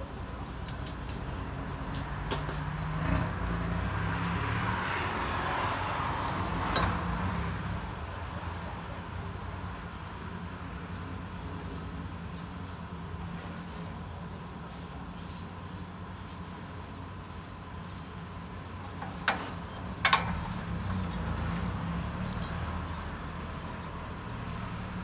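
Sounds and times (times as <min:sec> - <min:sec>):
light metal clinks: 0:00.6 - 0:02.9, 0:18.9 - 0:21.5, 0:22.1 - 0:22.7.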